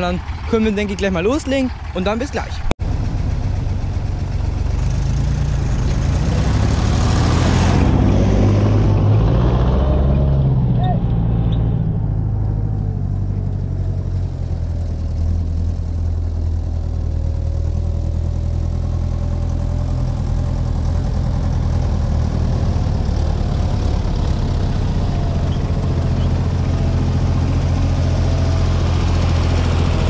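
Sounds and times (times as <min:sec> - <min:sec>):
tractor engine running: 0:00.0 - 0:30.0.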